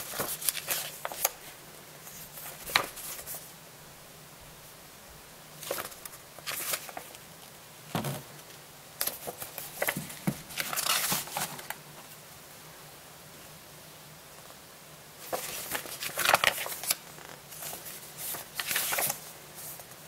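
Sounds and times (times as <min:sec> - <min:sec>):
paper rustling and crinkling: 0:00.0 - 0:03.5, 0:05.6 - 0:07.2, 0:09.0 - 0:11.8, 0:15.2 - 0:20.0.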